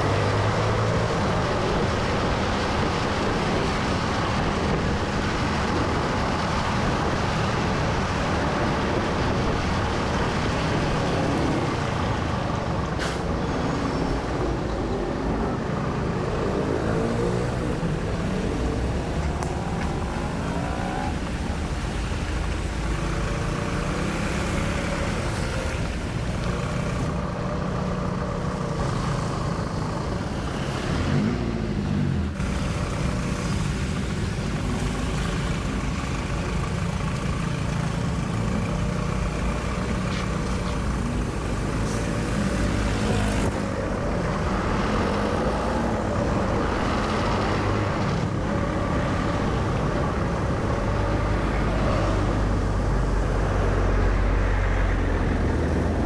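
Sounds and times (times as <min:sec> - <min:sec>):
surrounding traffic: 0:00.0 - 0:56.0
tyres hissing on wet road: 0:12.9 - 0:14.4, 0:39.5 - 0:48.2.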